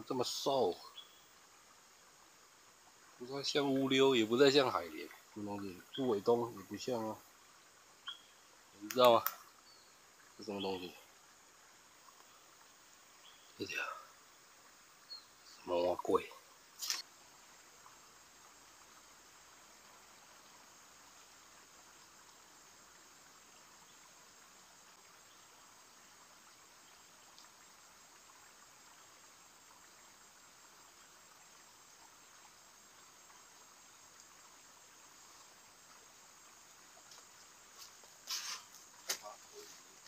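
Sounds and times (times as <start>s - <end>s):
insects chirring: 0.0s - 40.0s
sharp clicks: 8.8s - 9.4s
rustling: 16.8s - 17.0s, 37.1s - 40.0s.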